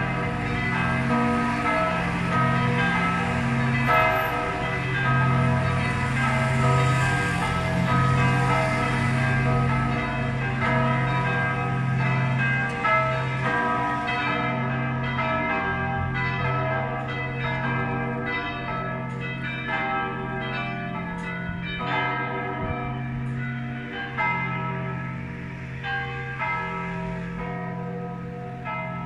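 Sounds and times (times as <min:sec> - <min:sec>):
church bells ringing in a peal: 0:00.0 - 0:29.0.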